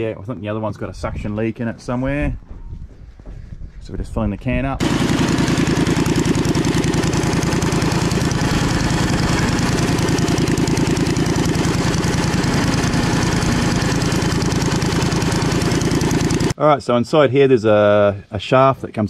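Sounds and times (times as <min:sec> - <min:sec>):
small engine idling: 0:04.8 - 0:16.6.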